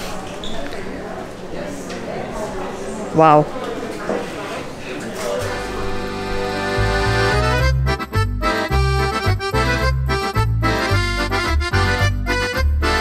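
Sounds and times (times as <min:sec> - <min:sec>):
folk music led by accordion: 0:05.5 - 0:13.0.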